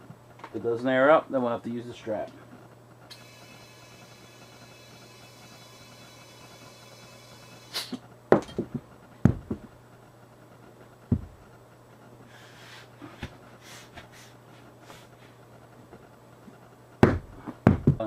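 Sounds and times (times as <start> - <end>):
compressed air hissing: 3.1 - 8.0
wheel thumps and knocks: 8.3 - 9.7, 11.1 - 11.4, 17.0 - 18.0.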